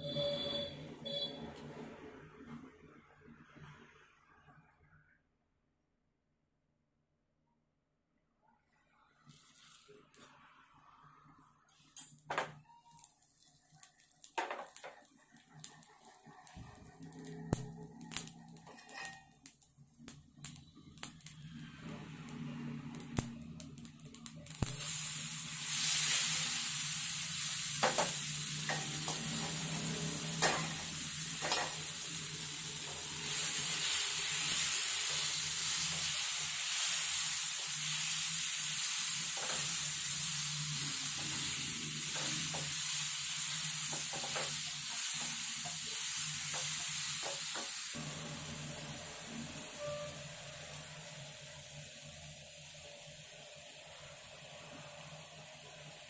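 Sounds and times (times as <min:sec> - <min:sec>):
steady sizzle: 0:09.1 - 0:56.0
spices crackling in hot oil: 0:09.2 - 0:56.0
wooden spatula scraping pan: 0:18.7 - 0:19.3.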